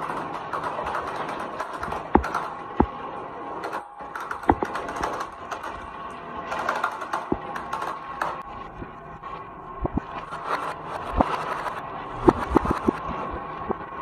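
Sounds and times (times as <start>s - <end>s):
sharp marble clacks: 0.0s - 3.0s, 10.6s - 13.1s.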